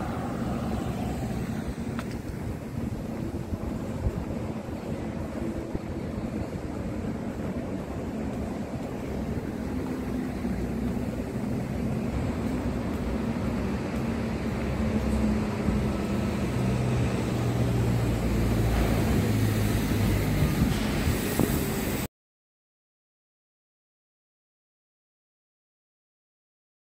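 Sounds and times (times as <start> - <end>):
low engine hum: 0.0 - 22.1
road traffic: 0.0 - 22.1
wind buffeting microphone: 0.0 - 22.1.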